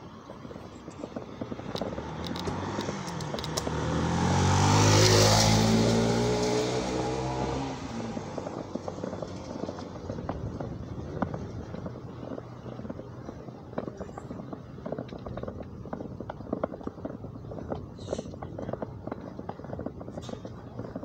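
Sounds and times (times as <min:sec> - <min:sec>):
small motorcycle passing by: 0:01.4 - 0:13.0.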